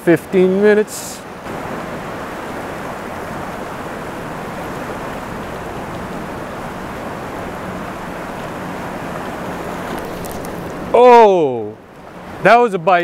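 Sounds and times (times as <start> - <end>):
river rushing over rocks: 1.2 - 11.5.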